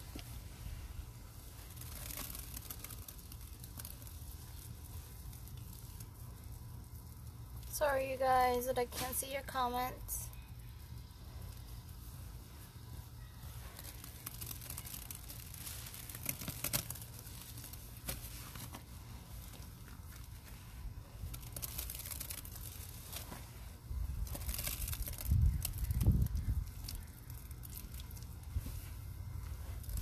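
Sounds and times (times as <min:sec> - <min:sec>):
wet paste crumbling: 0:01.4 - 0:07.6, 0:13.4 - 0:30.0.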